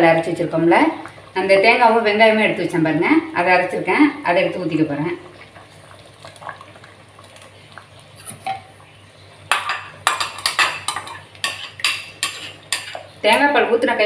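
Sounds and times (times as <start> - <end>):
liquid pouring into a pot: 4.8 - 13.1.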